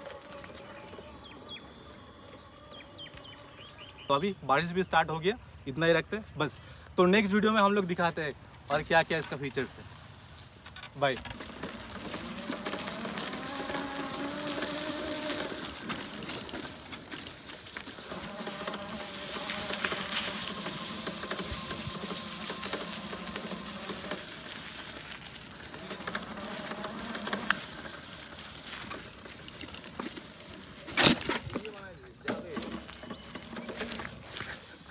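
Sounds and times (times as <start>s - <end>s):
tyres crunching on gravel: 0.0s - 3.8s, 7.1s - 34.9s
electric bicycle motor whining: 0.0s - 4.2s, 11.2s - 34.6s.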